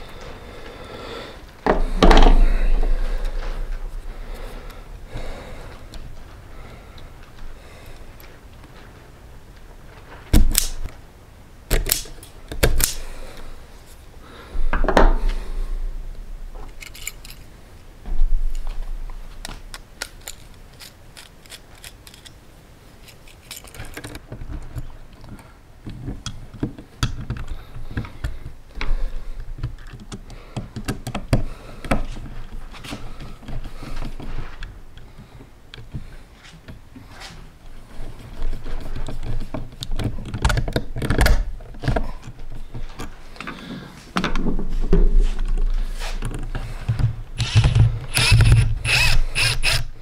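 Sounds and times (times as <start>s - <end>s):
screwdriver driving screws: 47.4s - 49.9s.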